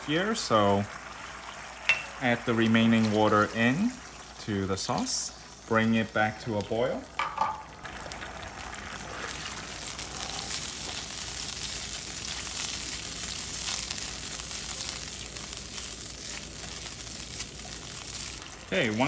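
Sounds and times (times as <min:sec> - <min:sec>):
sauce sizzling in a wok: 0:00.0 - 0:19.0.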